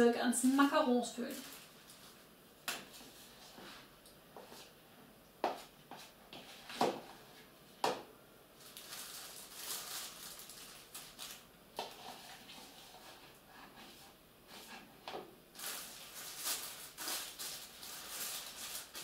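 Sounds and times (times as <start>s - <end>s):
plastic bag rustling: 0.6s - 3.9s, 8.6s - 13.4s, 15.5s - 19.0s.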